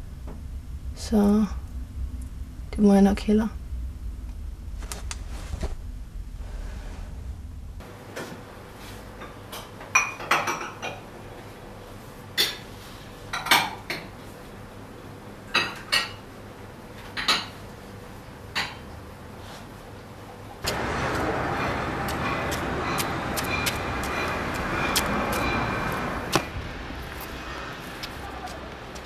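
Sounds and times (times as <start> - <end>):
low steady background: 0.0 - 8.0.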